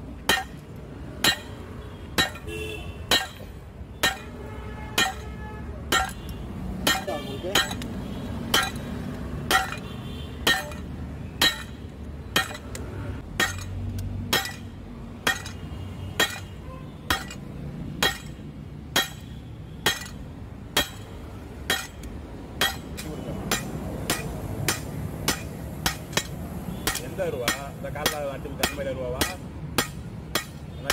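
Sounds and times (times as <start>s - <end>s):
hammer striking metal on anvil: 0.2s - 1.6s, 2.2s - 2.5s, 3.1s - 4.4s, 5.0s - 5.3s, 5.9s - 6.2s, 6.8s - 7.9s, 8.5s - 8.8s, 9.5s - 9.8s, 10.4s - 12.8s, 13.4s - 15.6s, 16.2s - 16.5s, 17.1s - 17.4s, 18.0s - 30.9s.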